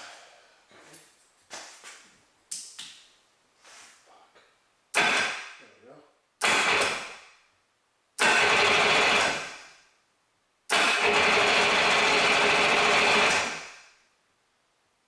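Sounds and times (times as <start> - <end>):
electric starter cranking engine: 6.4 - 7.0, 8.2 - 9.6, 10.7 - 13.6.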